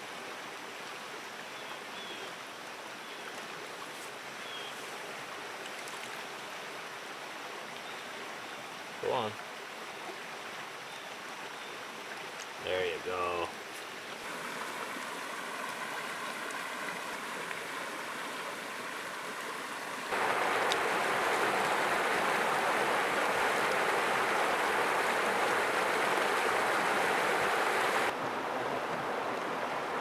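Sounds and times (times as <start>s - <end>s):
water washing at shoreline: 12.0s - 30.0s
river rapids rushing over rocks: 14.2s - 28.5s.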